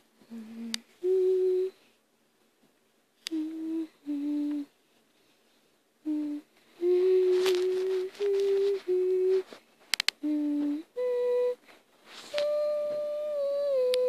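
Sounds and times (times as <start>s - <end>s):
person humming: 0.2s - 1.8s, 3.2s - 4.8s, 6.0s - 11.6s, 12.2s - 14.0s
sharp click: 9.9s - 10.2s.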